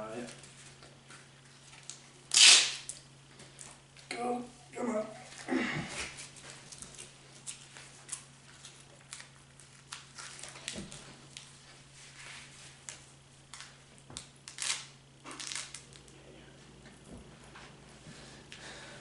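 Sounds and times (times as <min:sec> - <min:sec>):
velcro rustling and clicking: 0:01.7 - 0:02.9, 0:12.9 - 0:16.0
velcro rasps: 0:02.3 - 0:02.8, 0:14.5 - 0:15.8.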